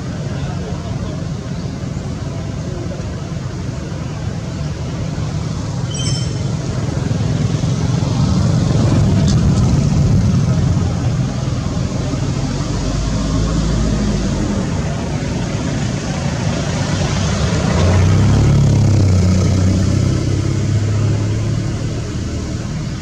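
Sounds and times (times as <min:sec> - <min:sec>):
low outdoor rumble: 0:00.0 - 0:18.6
brief high chirp: 0:05.9 - 0:06.7.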